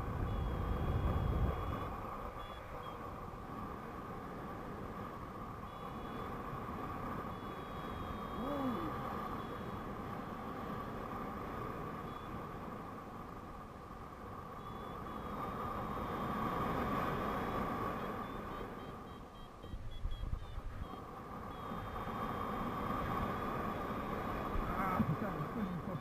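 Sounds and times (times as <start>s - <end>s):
wind buffeting microphone: 0.0s - 2.3s
high electronic beeps: 0.3s - 3.0s, 14.6s - 15.4s, 18.0s - 22.0s.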